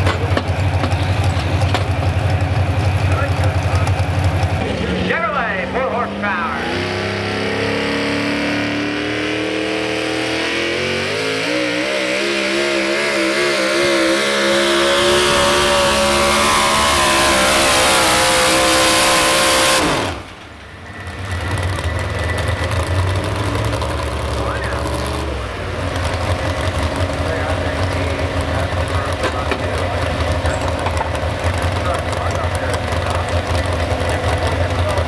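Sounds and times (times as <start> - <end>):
engine idling: 0.0 - 6.5, 19.8 - 35.0
truck engine at full throttle: 0.0 - 35.0.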